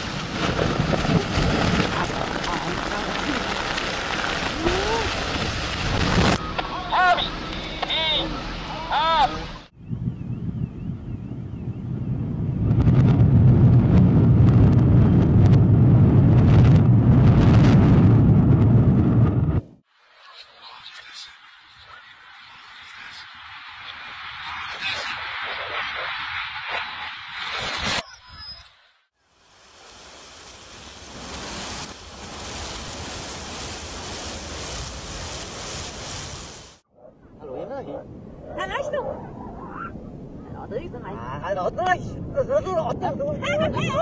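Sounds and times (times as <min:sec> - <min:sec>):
reversed demolition rumble: 0:00.0 - 0:07.6.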